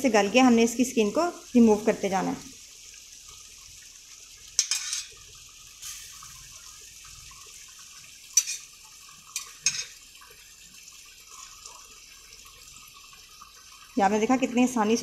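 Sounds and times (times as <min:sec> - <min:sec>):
food simmering with hiss: 0:00.0 - 0:15.0
metal tongs clicking on pan: 0:04.6 - 0:05.1, 0:08.4 - 0:08.7.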